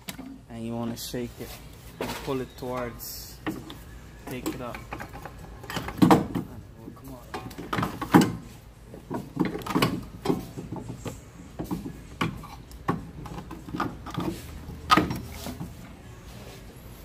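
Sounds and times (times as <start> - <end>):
metallic clunks and knocks: 3.4 - 6.6.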